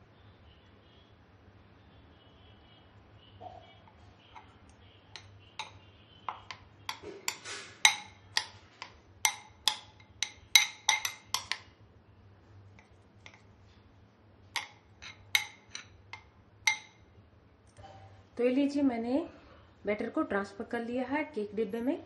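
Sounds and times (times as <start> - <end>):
spoon clinking against bowl: 3.4 - 11.7, 14.6 - 17.1
soft scrape of batter: 7.0 - 7.9.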